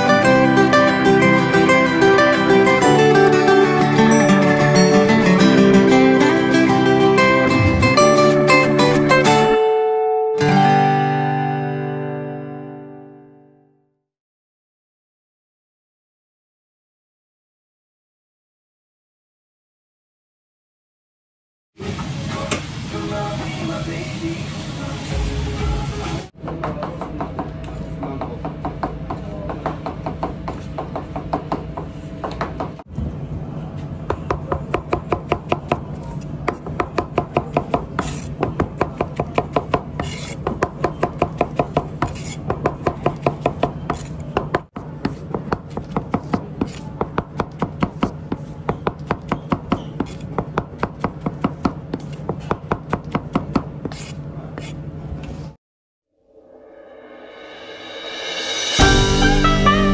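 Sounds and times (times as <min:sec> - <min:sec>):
knife slicing on cutting board: 0:37.6 - 0:40.7, 0:41.3 - 0:44.3, 0:45.0 - 0:47.0, 0:49.3 - 0:50.4, 0:53.6 - 0:54.8.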